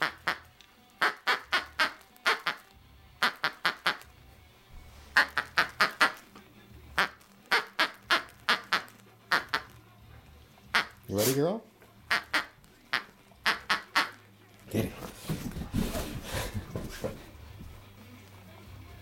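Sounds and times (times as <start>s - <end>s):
dog toy squeaking: 5.1s - 6.2s, 6.9s - 9.8s, 12.1s - 14.2s.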